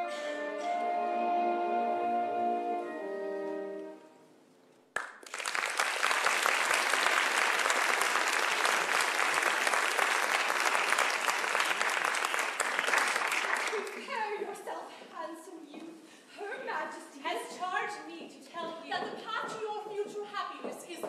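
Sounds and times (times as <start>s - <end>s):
audience applauding: 5.0s - 14.1s.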